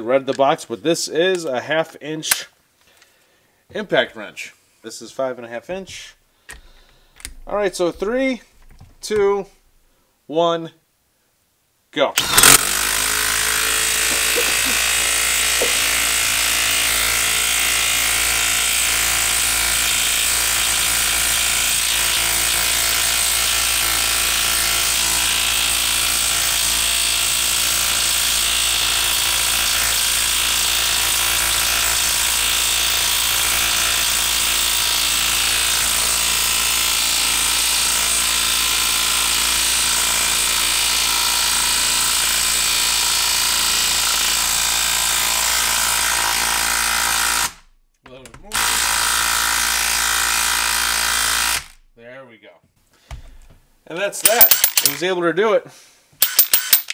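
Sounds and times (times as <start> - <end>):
impact wrench hammering: 12.2 - 18.2, 54.2 - 55.0, 56.2 - 56.9.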